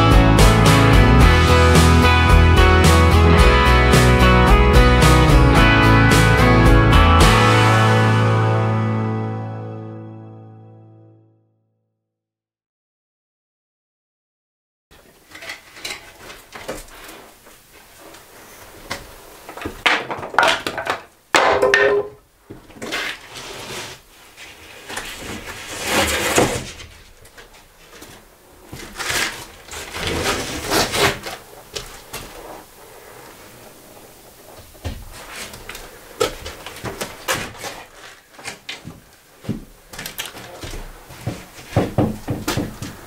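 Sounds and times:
wooden boards knocking: 19.5s - 22.2s, 40.5s - 43.0s
wood scraping against wood: 22.7s - 43.0s.

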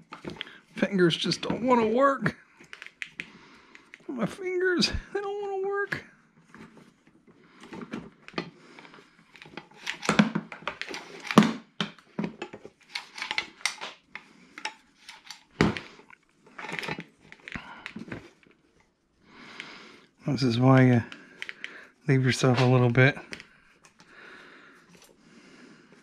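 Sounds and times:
plastic and metal parts rattling: 7.6s - 18.6s.

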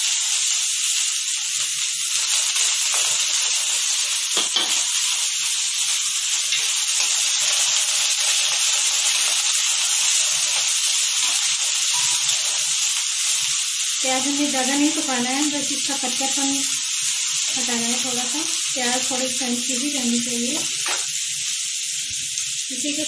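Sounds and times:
onions sizzling in hot oil: 0.0s - 23.0s
spoon stirring in pan: 9.2s - 13.6s.

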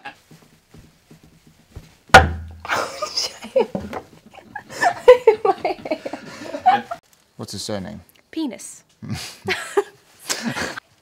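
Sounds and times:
heavy thump with low boom: 2.1s - 2.6s.

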